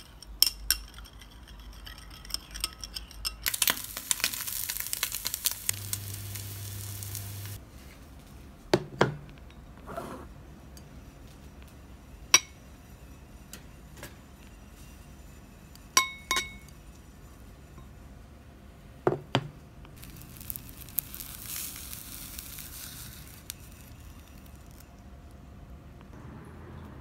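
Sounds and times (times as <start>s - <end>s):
fried egg hissing: 3.5s - 7.6s, 20.0s - 25.0s
ceramic dishes clinking: 16.0s - 16.7s.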